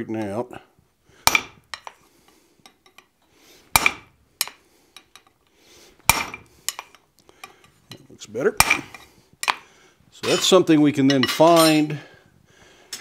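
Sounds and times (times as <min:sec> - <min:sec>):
hammer striking metal punch: 0:01.3 - 0:01.9, 0:03.8 - 0:04.6, 0:06.1 - 0:06.5, 0:08.6 - 0:09.0.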